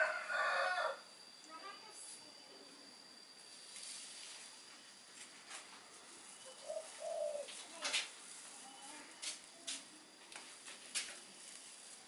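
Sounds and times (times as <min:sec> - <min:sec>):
dry straw crackling: 0:05.2 - 0:12.0
low cooing notes: 0:06.5 - 0:07.6.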